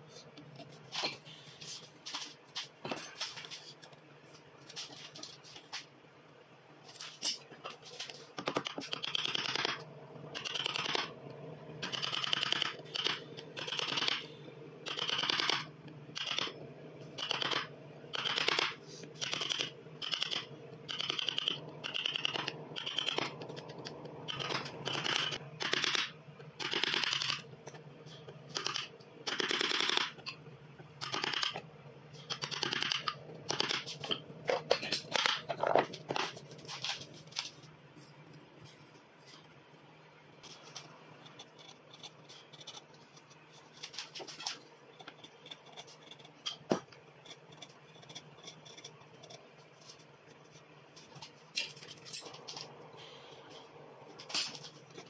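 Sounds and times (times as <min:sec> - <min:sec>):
chisel scraping wood: 0:47.2 - 0:50.0.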